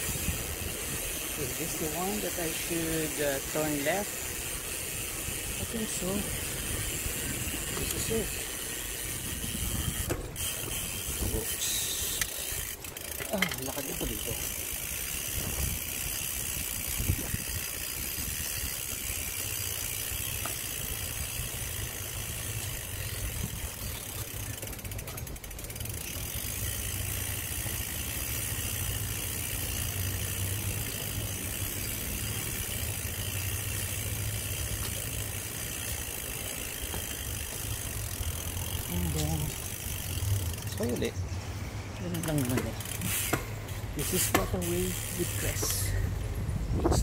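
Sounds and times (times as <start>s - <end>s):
bicycle freewheel ticking: 0.0s - 41.1s, 42.1s - 46.4s.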